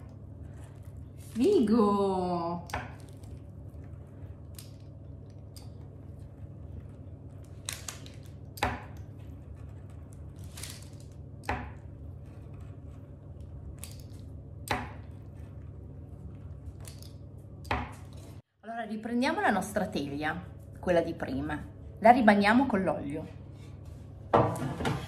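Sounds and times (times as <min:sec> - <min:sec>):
pizza cutter rolling through dough: 0:00.0 - 0:16.8
steady low hum: 0:00.0 - 0:25.0.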